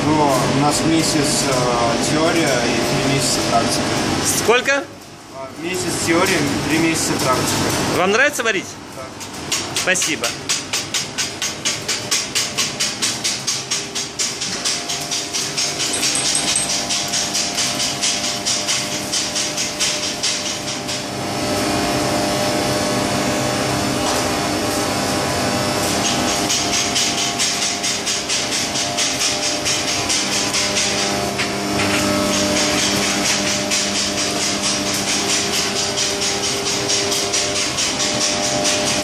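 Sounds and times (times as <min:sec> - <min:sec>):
steady machine hum: 0:11.6 - 0:39.0
rapid even clatter: 0:13.2 - 0:20.6.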